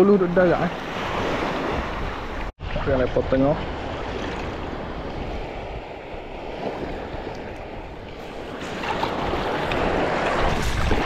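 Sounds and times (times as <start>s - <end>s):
small waves washing in: 0.6s - 11.0s
seawater sloshing: 3.6s - 11.0s.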